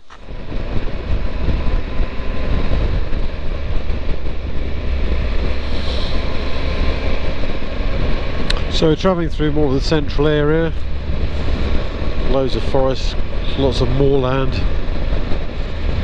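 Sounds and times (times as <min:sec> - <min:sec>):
wind rushing over microphone: 0:00.0 - 0:16.0.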